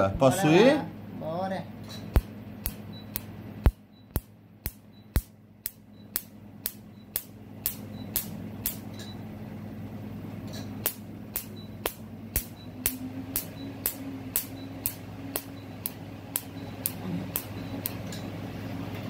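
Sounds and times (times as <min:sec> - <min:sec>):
laser handpiece snapping: 0:02.1 - 0:08.8, 0:10.8 - 0:18.0.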